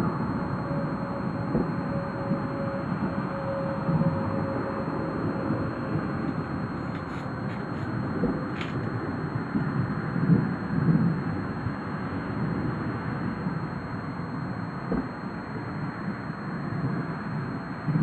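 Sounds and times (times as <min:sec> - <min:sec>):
wind on microphone: 0:01.4 - 0:11.6.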